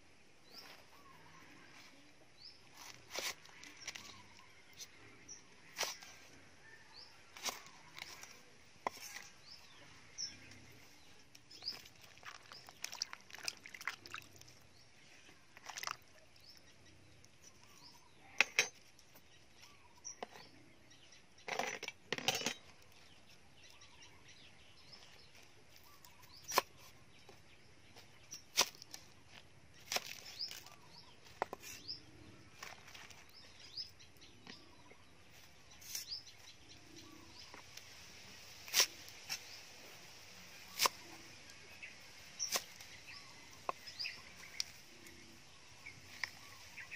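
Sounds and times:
birds chirping: 0.0 - 46.9.

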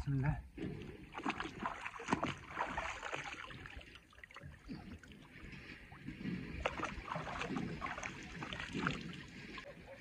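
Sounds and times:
stream flowing: 1.0 - 9.7
hand splashing in water: 1.1 - 3.9.

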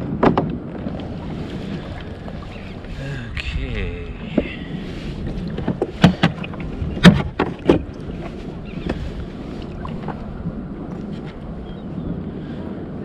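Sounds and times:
knocks and clacks on kayak: 0.0 - 2.9, 4.2 - 10.3
water noise: 0.0 - 13.0
wind: 0.0 - 13.0.

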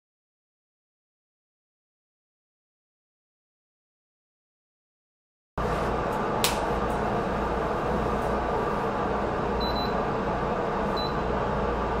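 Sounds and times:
cooling fans whirring: 5.6 - 12.0.

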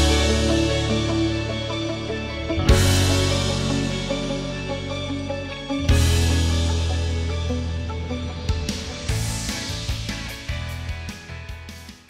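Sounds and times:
soundtrack music with heavy bass: 0.0 - 12.0.

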